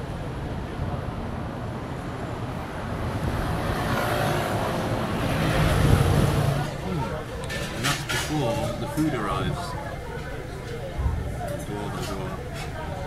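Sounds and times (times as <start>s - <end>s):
wind rumbling on microphone: 0.0s - 6.8s
city street traffic: 0.0s - 13.0s.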